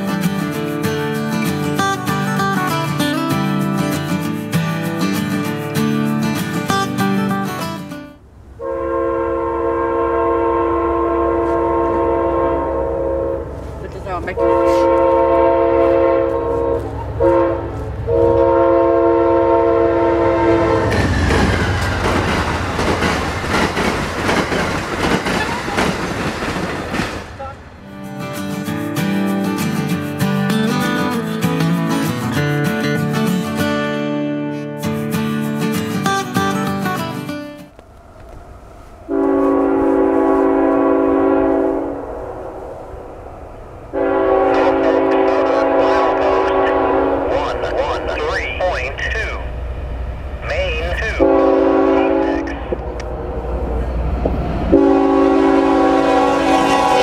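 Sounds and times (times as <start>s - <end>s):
train air horn blasts: 8.6s - 21.0s, 39.1s - 42.7s, 43.9s - 48.0s, 51.0s - 53.0s, 54.7s - 57.0s
train wheels clacking on rail: 20.8s - 27.6s.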